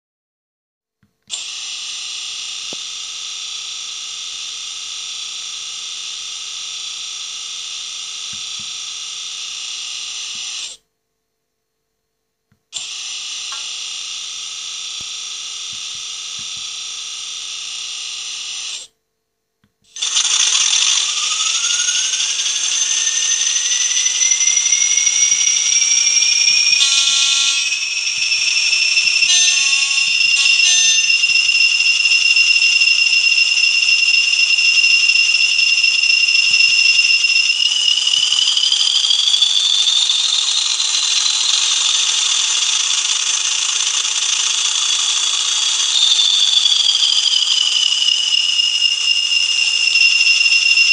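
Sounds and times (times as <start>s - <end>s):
turbocharger whistle: 19.9s - 50.9s
falling high tone: 21.0s - 40.7s, 44.8s - 50.9s.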